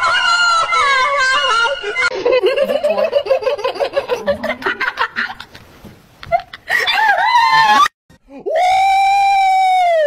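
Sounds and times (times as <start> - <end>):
women giggling and laughing: 0.8 - 7.3.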